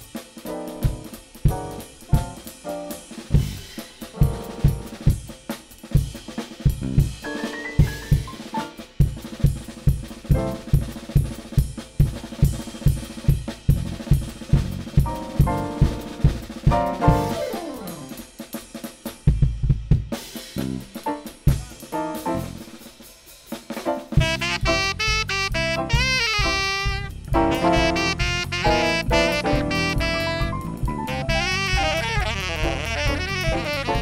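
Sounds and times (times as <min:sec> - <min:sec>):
bass and keyboard notes: 0:00.0 - 0:05.0, 0:06.8 - 0:08.8, 0:13.7 - 0:18.2, 0:20.6 - 0:22.7, 0:24.1 - 0:34.0
drum kit playing: 0:00.0 - 0:34.0.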